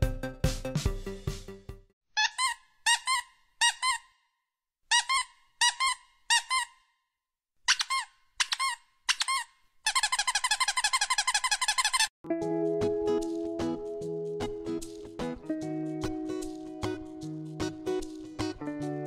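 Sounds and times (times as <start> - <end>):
squeaky toy squeaks: 2.2 - 4.3, 4.9 - 7.0, 7.6 - 12.1.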